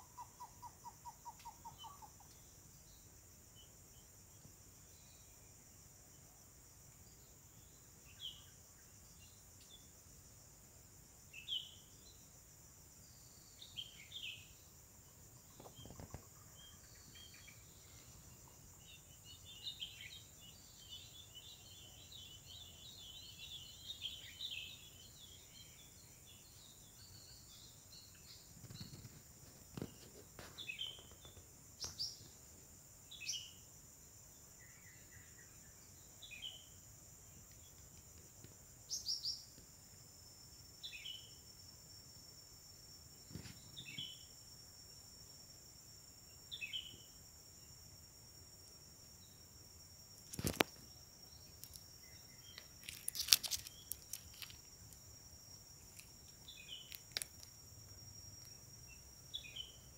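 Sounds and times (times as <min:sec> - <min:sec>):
bird chattering and chirping: 0:00.0 - 0:02.3.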